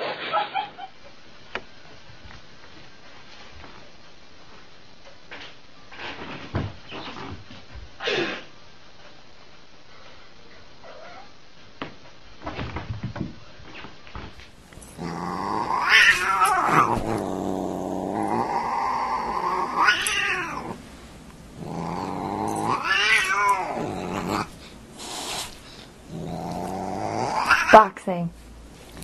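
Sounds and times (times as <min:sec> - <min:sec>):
cat growling: 0:14.8 - 0:28.0
cat yowling: 0:15.0 - 0:17.1, 0:18.1 - 0:20.8, 0:21.6 - 0:24.5, 0:27.2 - 0:27.8.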